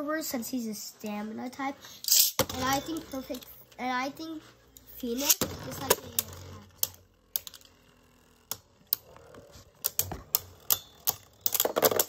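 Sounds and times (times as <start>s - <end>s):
spinning tops clacking: 2.0s - 3.5s, 5.0s - 8.6s.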